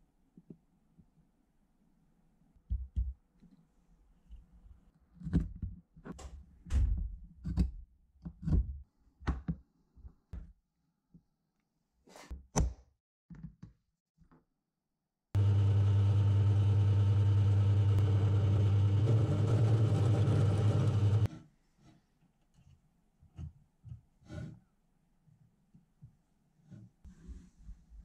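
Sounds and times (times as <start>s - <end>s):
drill press motor humming: 15.4s - 21.3s.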